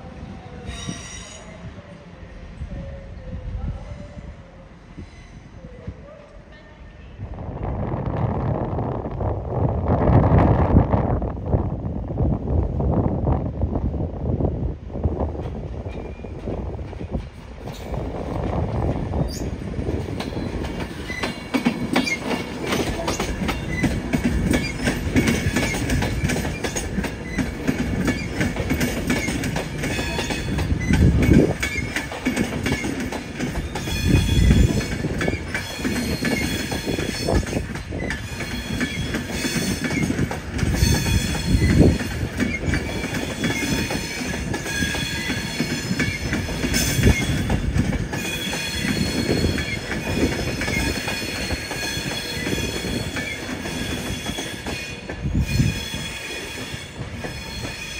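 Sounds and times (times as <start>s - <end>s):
train wheels clattering: 15.4s - 57.9s
high wheel squeal: 33.6s - 47.5s, 48.1s - 57.9s.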